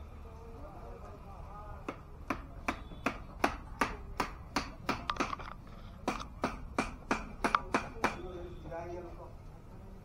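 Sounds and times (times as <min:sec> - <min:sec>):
hammer blows ringing: 0:01.9 - 0:05.1, 0:06.0 - 0:08.7.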